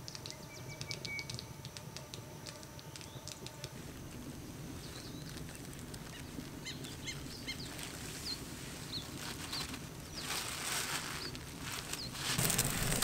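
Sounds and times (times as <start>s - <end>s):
plastic bag rustling: 7.7s - 13.0s.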